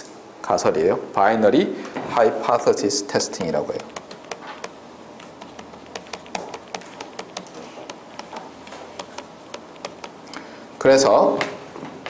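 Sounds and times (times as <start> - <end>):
stylus tapping on tablet: 3.3 - 10.4.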